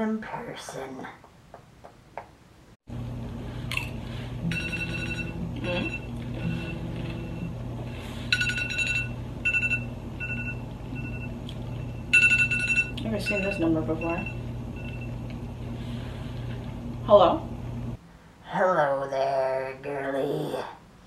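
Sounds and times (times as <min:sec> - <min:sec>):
low hum: 0:02.9 - 0:18.4
smartphone ringtone melody: 0:04.5 - 0:06.7, 0:08.3 - 0:11.3, 0:12.1 - 0:13.5.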